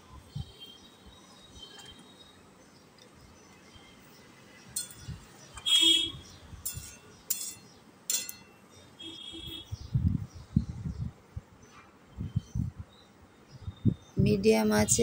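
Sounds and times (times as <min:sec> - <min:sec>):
metal spatula scraping a pan: 0:06.6 - 0:08.6.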